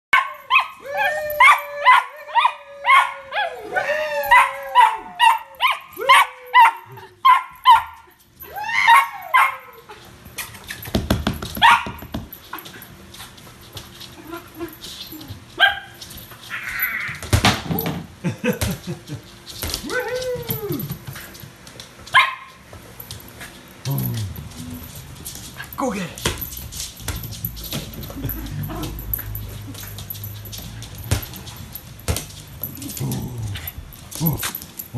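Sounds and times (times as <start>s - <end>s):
dog whine-bark: 0.2s - 8.0s
ball thumping on wooden floor: 10.9s - 12.4s.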